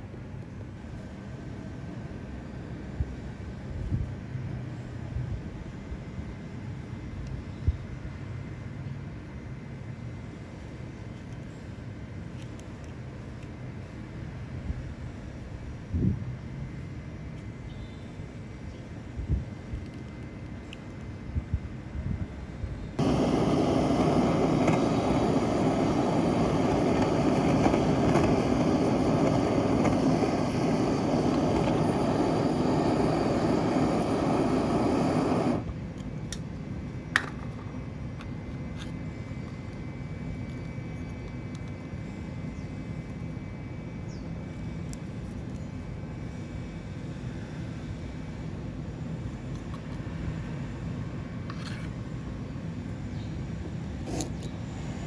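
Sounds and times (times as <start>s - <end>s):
burner flame roaring: 23.0s - 36.4s, 53.7s - 55.0s.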